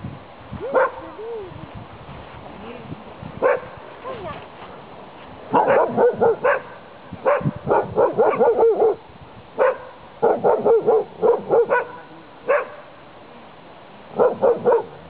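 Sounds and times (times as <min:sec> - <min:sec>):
dog barking: 0:00.6 - 0:01.0, 0:03.4 - 0:04.2, 0:05.5 - 0:09.0, 0:09.6 - 0:12.9, 0:14.2 - 0:15.0.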